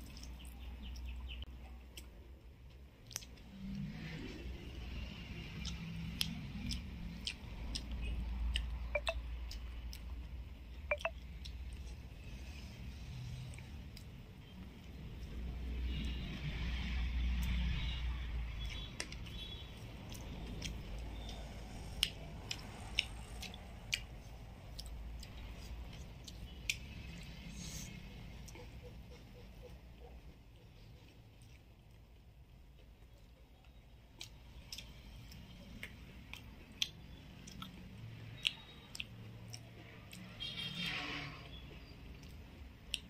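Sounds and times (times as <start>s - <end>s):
wet mouth clicks chewing: 3.0s - 3.8s, 5.5s - 10.2s, 10.8s - 12.0s, 18.6s - 28.8s, 34.2s - 40.4s.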